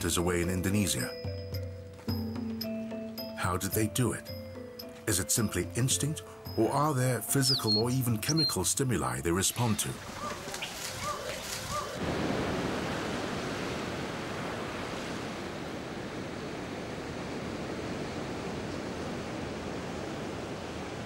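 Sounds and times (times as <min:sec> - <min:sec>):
ocean waves breaking: 0:09.3 - 0:21.0.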